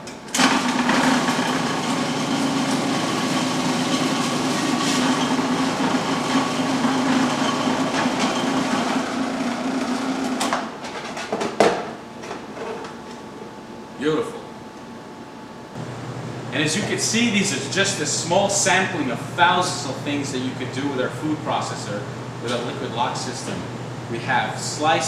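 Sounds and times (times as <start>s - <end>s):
food processor motor running: 0.4s - 10.7s.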